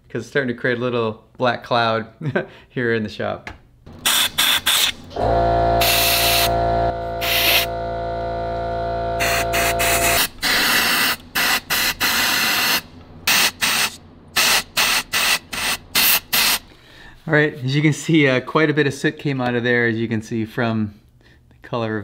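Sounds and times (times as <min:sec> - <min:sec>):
steady hum: 0:03.9 - 0:18.4
compressed air blasts: 0:04.0 - 0:07.8, 0:09.2 - 0:16.9.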